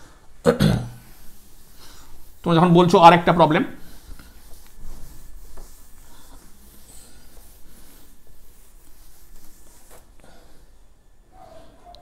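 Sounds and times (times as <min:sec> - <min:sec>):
scratching of writing: 0:03.8 - 0:10.1.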